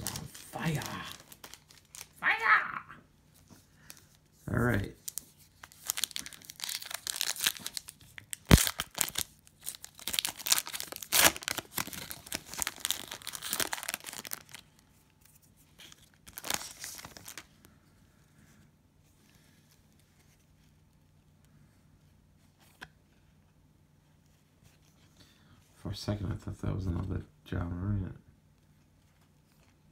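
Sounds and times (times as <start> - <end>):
cellophane tearing and crinkling: 0.0 - 2.2, 5.0 - 17.5.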